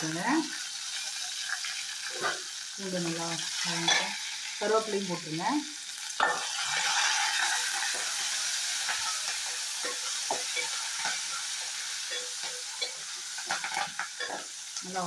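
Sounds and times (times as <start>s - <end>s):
spices sizzling in hot oil: 0.0s - 15.0s
steel ladle scraping pan: 6.2s - 14.5s.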